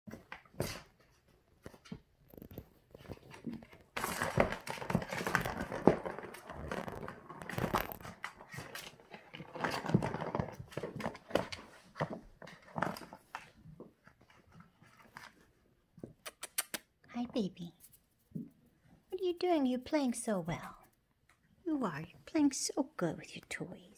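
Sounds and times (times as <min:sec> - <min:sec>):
kitten scrambling on plastic: 0:00.1 - 0:15.4.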